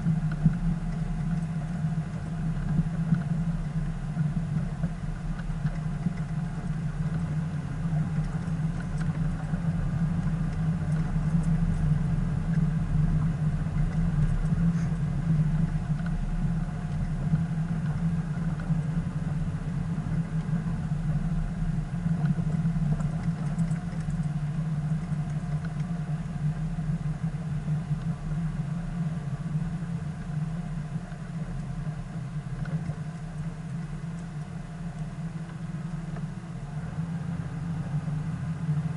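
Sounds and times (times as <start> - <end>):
vehicle engine running at low speed: 0.0 - 38.9.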